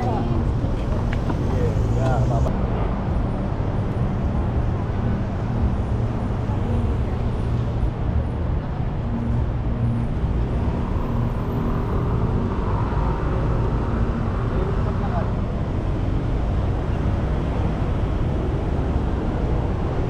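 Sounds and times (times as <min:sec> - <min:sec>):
low rumble of road traffic: 0:00.0 - 0:20.0.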